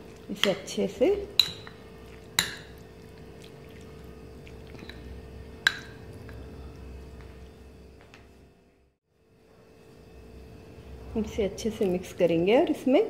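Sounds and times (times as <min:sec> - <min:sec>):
spoon mixing marinade: 0:00.0 - 0:07.2, 0:11.6 - 0:12.3
spoon clinking against glass: 0:01.4 - 0:01.8.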